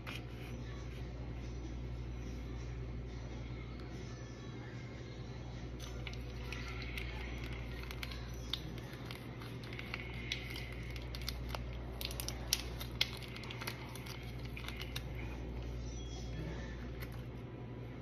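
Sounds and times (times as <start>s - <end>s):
steady low hum: 0.0s - 18.0s
plastic packets crinkling: 5.8s - 15.3s.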